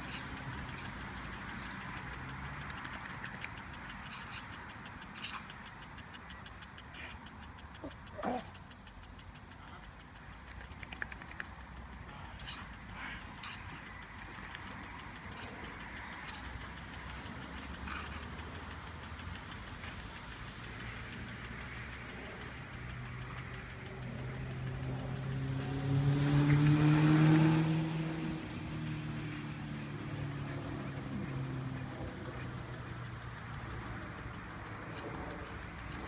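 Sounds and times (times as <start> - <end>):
impact sprinkler ticking: 0.0 - 36.0
hiss of water spray: 11.8 - 36.0
motor hum rising in pitch: 20.6 - 36.0.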